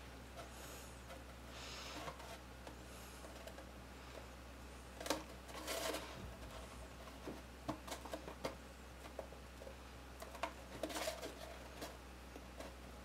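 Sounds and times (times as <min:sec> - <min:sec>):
paper rustle: 0:05.0 - 0:08.5, 0:10.2 - 0:12.0.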